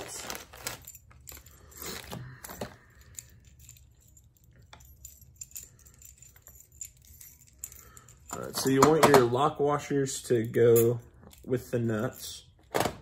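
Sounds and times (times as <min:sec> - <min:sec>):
plastic bag crinkling: 0:00.0 - 0:02.9
metal bolts clinking: 0:03.6 - 0:09.6.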